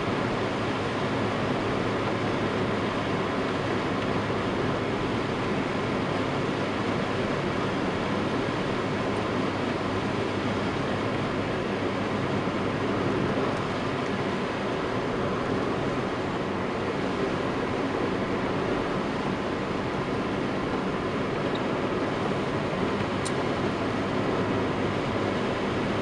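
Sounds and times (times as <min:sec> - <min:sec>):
car cabin road noise: 0:00.0 - 0:26.0.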